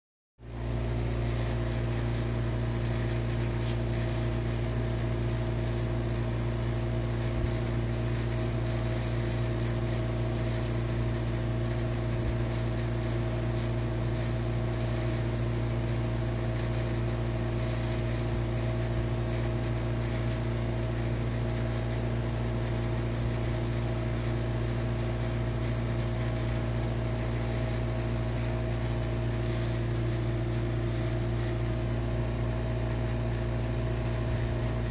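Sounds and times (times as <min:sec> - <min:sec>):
machine hum: 0:00.4 - 0:34.9.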